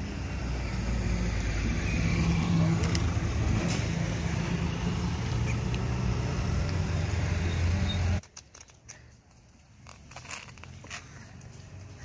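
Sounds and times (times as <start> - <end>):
engine hum: 0.0 - 8.2.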